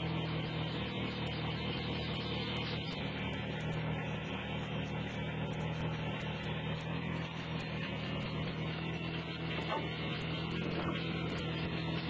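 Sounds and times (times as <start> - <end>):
sawmill motor humming: 0.0 - 12.0.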